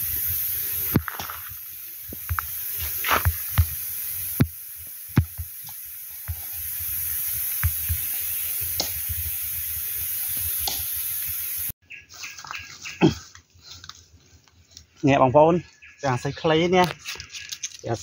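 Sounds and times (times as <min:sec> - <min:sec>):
high-pitched hiss: 0:00.0 - 0:11.8.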